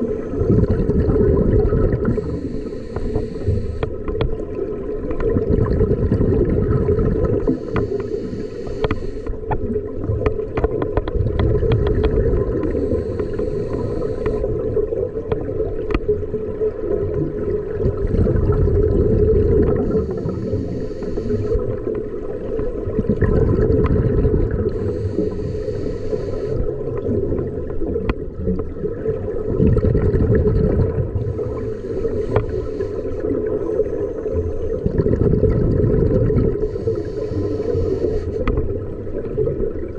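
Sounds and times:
diver breathing through regulator: 1.8s - 4.1s, 7.3s - 9.4s, 12.5s - 14.7s, 19.6s - 21.8s, 24.4s - 26.7s, 31.1s - 34.6s, 36.2s - 38.6s.

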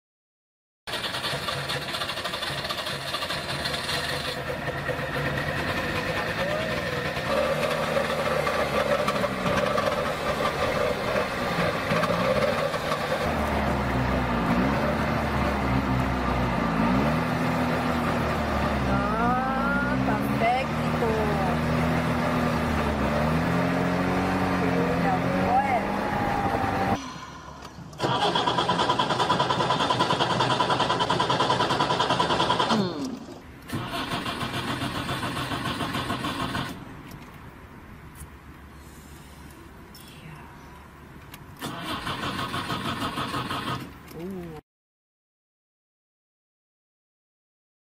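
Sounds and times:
small two-stroke car engine running: 0.9s - 14.2s, 28.0s - 36.8s.

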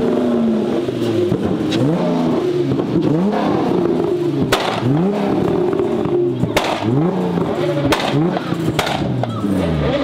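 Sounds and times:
car engine revving hard: 0.0s - 10.0s
sharp cracks: 4.5s - 4.9s, 6.5s - 7.0s, 7.8s - 9.4s.

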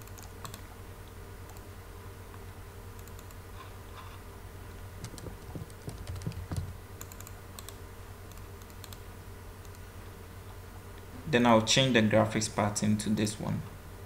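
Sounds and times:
computer keyboard typing: 0.0s - 0.6s, 3.0s - 3.4s, 5.0s - 9.0s
steady low hum: 0.0s - 14.0s.

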